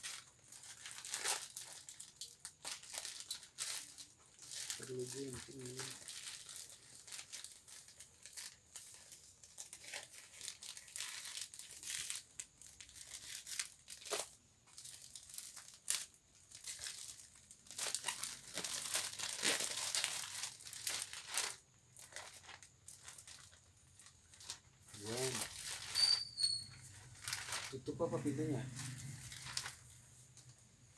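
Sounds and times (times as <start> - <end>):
plastic packaging crinkling: 0.0 - 30.9
plastic tearing and snapping: 0.1 - 9.0, 9.6 - 23.6, 28.7 - 30.5.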